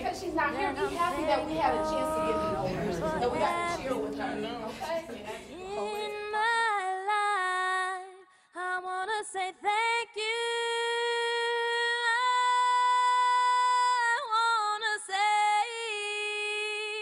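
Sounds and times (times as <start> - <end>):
woman singing solo: 0.5 - 14.0.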